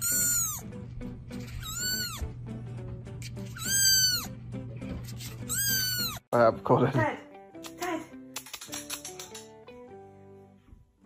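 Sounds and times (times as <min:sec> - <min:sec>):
kitten meowing: 0:00.0 - 0:00.7, 0:01.4 - 0:02.3, 0:03.4 - 0:04.3, 0:05.4 - 0:06.2.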